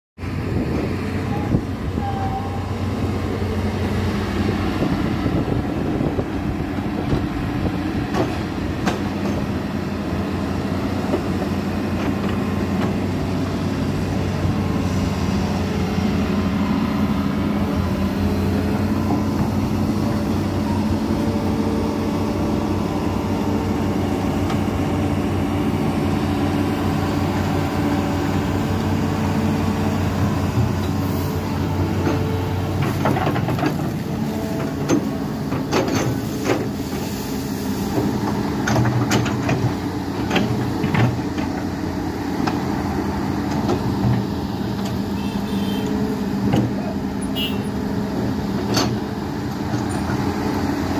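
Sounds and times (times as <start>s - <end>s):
excavator diesel engine running: 0.2s - 50.9s.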